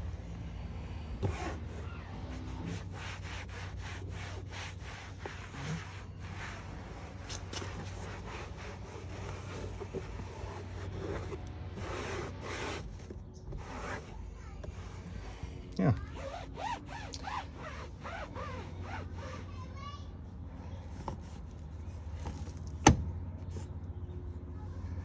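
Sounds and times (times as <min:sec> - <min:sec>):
towel rubbing plastic panel: 0:01.2 - 0:14.2, 0:16.1 - 0:19.5.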